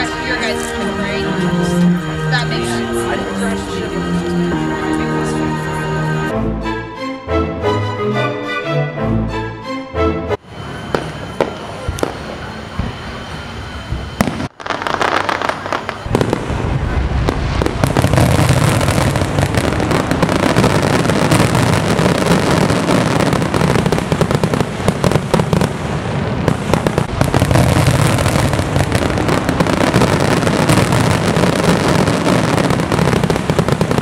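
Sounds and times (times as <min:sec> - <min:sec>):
fireworks bangs and crackling: 0:10.5 - 0:34.0.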